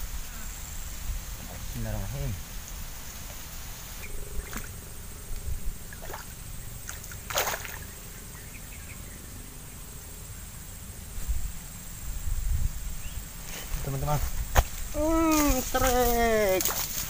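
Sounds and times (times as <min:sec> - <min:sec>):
thin high hum: 0:00.0 - 0:17.0
low rumble: 0:03.4 - 0:13.1.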